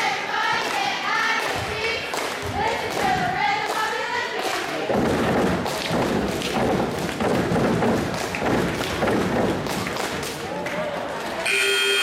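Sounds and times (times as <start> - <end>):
crowd chatter: 0.0 - 12.0.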